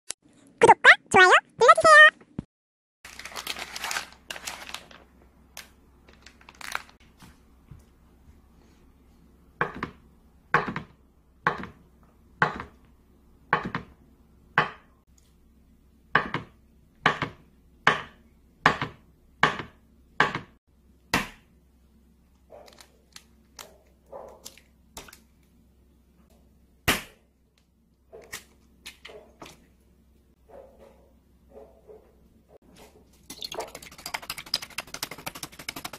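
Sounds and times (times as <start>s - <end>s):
knife chopping on wooden board: 10.6s - 10.9s, 11.5s - 11.8s, 12.4s - 12.7s, 16.2s - 20.5s.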